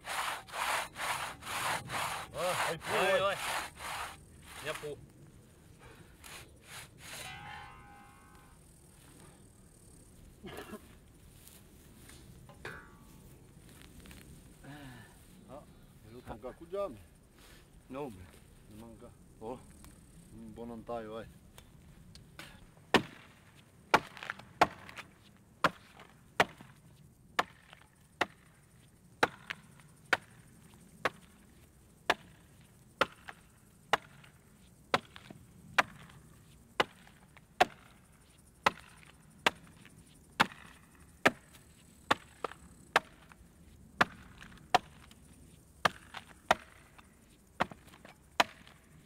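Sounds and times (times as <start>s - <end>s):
axe chopping into tree trunk: 22.9s - 23.3s, 23.9s - 25.0s, 25.6s - 26.7s, 33.0s - 34.3s, 34.9s - 36.1s, 36.8s - 37.9s, 38.6s - 39.7s, 40.4s - 41.5s, 42.1s - 43.3s, 44.0s - 45.1s, 45.8s - 46.9s, 47.6s - 48.8s.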